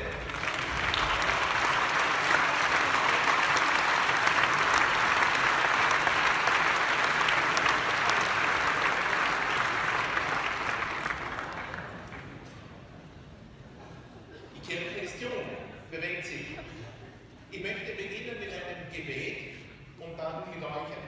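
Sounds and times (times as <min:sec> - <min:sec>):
large audience applauding: 0:00.0 - 0:12.5.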